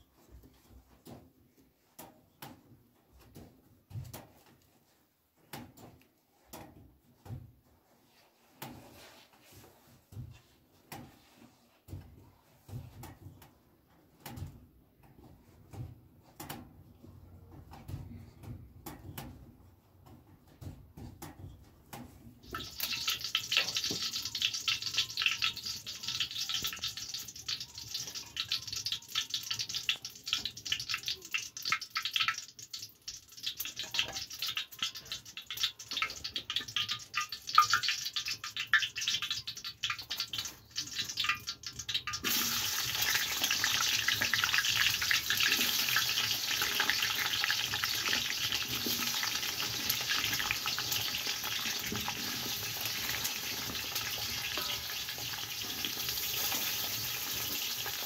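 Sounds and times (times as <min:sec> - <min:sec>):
potatoes frying sizzle: 0:22.4 - 0:58.0.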